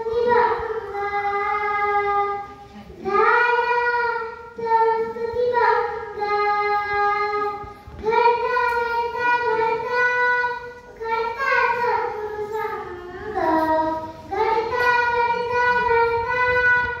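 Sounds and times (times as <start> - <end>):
girl singing into a microphone: 0.0 - 17.0.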